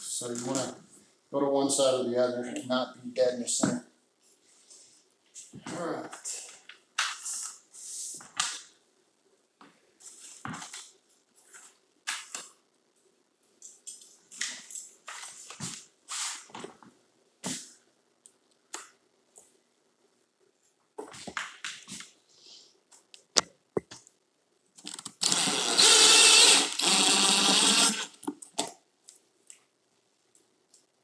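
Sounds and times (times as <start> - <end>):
cordless drill whining: 25.2 - 28.2.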